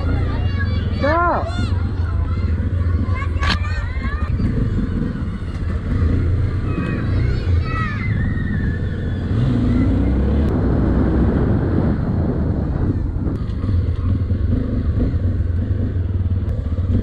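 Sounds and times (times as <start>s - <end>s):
motorcycle engine rumble: 0.0s - 17.0s
wind on microphone: 9.2s - 15.4s.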